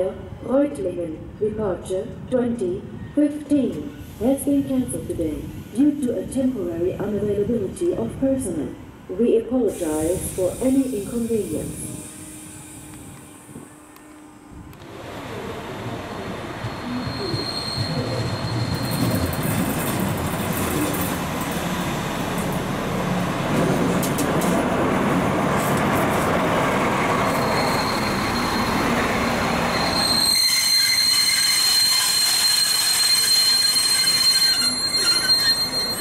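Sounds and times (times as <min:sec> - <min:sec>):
diesel locomotive rumbling: 0:00.0 - 0:36.0
high-pitched wheel squeal: 0:16.6 - 0:19.6, 0:27.2 - 0:36.0.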